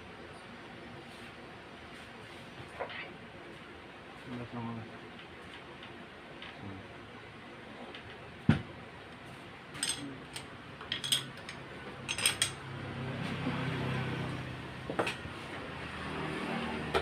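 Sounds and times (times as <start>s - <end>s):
metal tools clinking on engine: 9.8s - 12.6s.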